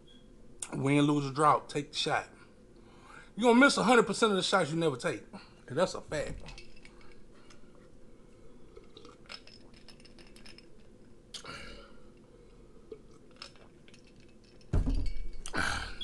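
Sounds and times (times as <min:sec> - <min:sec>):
person swallowing: 0:15.4 - 0:16.0.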